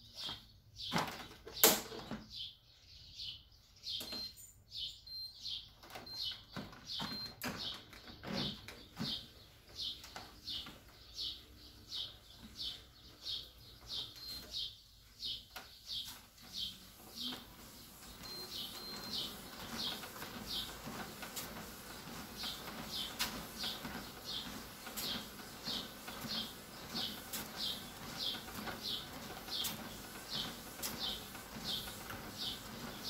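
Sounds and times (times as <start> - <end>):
footsteps on treadmill belt: 5.8 - 33.0.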